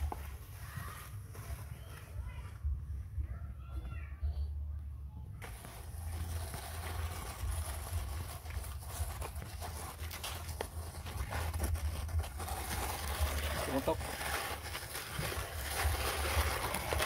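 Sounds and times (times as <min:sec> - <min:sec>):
plastic dustpan scraping over dirt: 0:05.4 - 0:17.0.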